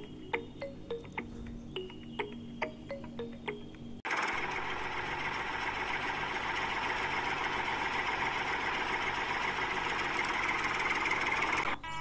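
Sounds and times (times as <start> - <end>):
toy gear motor whirring: 6.9 - 11.7.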